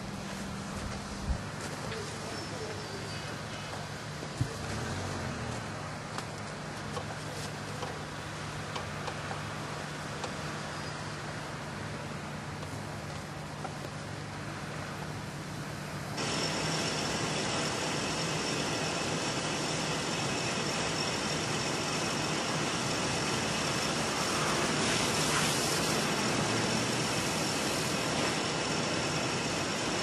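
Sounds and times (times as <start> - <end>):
street traffic: 0.0 - 30.0
faint high whine: 13.4 - 30.0.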